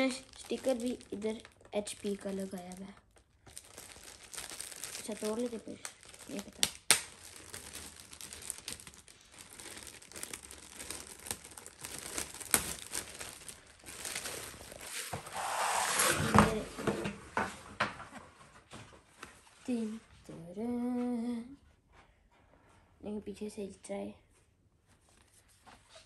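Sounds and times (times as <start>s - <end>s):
packaging ripping: 0.0s - 16.6s
packaging crinkling and rustling: 0.0s - 17.4s.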